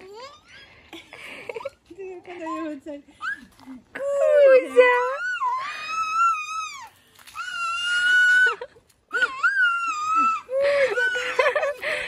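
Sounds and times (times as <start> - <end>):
baby squealing: 0.0 - 0.7, 4.8 - 11.4.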